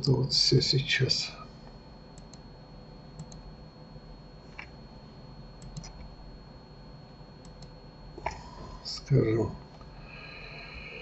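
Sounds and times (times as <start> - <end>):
low steady hum: 0.0 - 11.0
mouse and keyboard clicking: 5.6 - 6.0.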